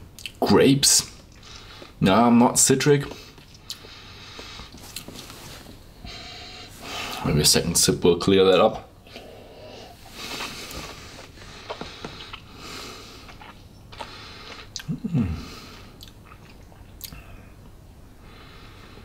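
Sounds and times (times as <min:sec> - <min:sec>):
mouth and lip clicks: 0:13.2 - 0:15.0, 0:16.0 - 0:17.2.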